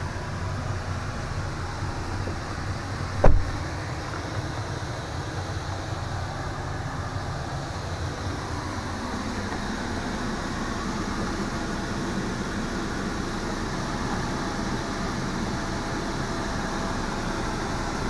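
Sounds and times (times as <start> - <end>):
low rumbling background noise: 0.0 - 18.0
sharp thump: 3.2 - 3.6.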